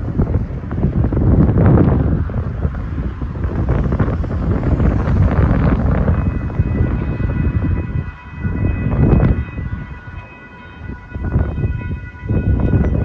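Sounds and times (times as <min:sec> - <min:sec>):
wind buffeting microphone: 0:00.0 - 0:13.0
railroad crossing bells ringing: 0:06.2 - 0:13.0.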